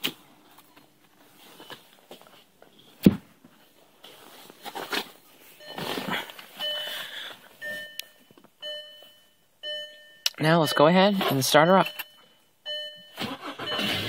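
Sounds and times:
shuffling and rustling: 0.0 - 9.2
car dashboard chime beeping: 6.6 - 7.0, 7.6 - 14.0.

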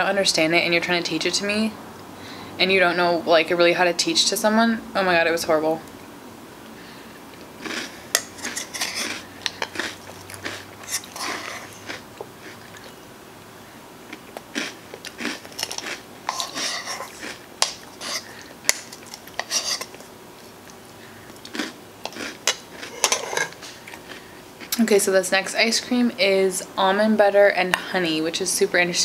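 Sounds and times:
person chewing: 7.3 - 13.0, 14.1 - 24.8
spoon scraping plastic bowl: 8.1 - 9.8, 10.8 - 11.9, 15.6 - 20.0, 22.9 - 23.6.

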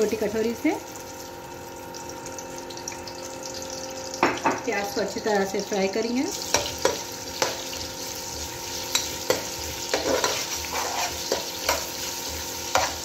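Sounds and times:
onions sizzling in oil: 0.0 - 13.0
spoon scraping a pot: 8.8 - 13.0.

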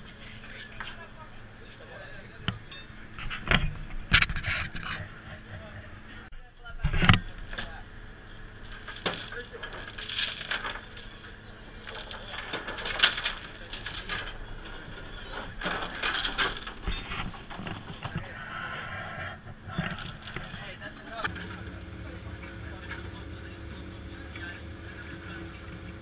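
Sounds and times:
steel rings and chain clinking: 0.4 - 1.1, 7.2 - 7.8, 8.6 - 18.8, 19.7 - 21.3.

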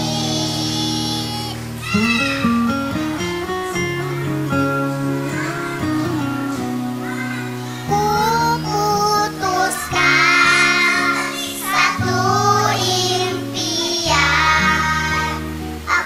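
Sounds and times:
girls singing in unison: 0.0 - 2.0, 7.8 - 16.0
backing music with low chords: 0.0 - 16.0.

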